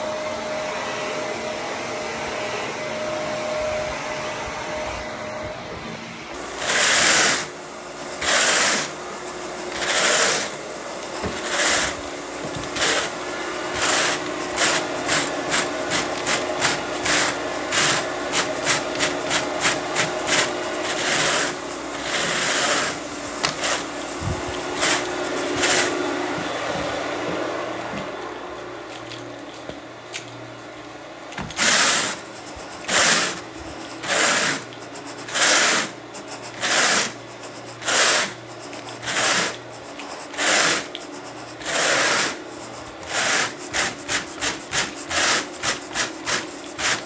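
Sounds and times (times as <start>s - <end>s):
rake scratching through carpet: 6.4s - 28.1s, 31.4s - 47.0s.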